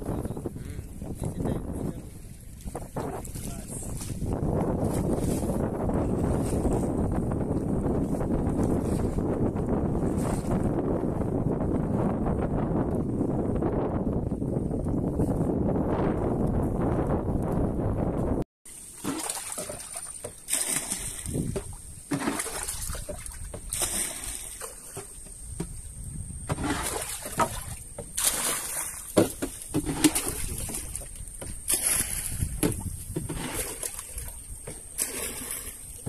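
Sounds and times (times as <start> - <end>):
wind rumbling on microphone: 0.0 - 18.4, 20.7 - 36.0
paddle strokes splashing: 2.1 - 11.3, 18.7 - 36.0.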